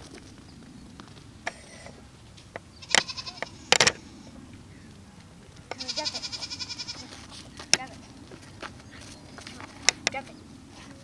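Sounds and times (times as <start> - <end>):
high-pitched animal call: 2.8 - 4.3, 5.7 - 7.2.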